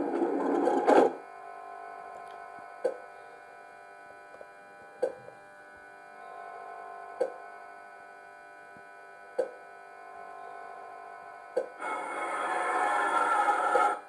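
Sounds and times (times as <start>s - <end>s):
sliding door: 0.0s - 1.2s, 11.9s - 14.0s
electrical hum: 0.0s - 14.0s.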